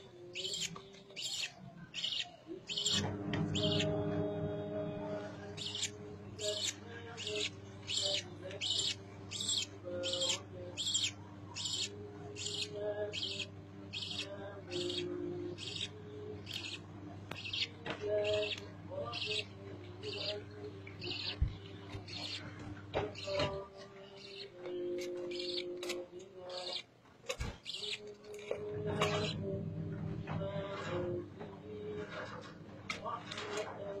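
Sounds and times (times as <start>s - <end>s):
faint steady hum: 0.0s - 34.0s
budgerigar chicks begging cheeps: 0.4s - 3.0s, 5.6s - 16.8s.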